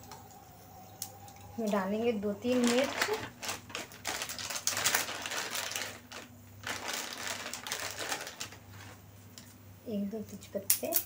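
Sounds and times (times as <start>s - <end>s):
chillies crackling in hot oil: 1.6s - 9.1s.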